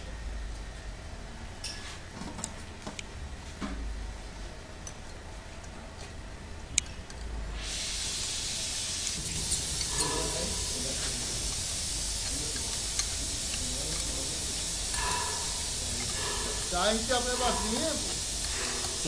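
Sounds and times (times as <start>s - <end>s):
steady hiss: 7.5s - 19.0s.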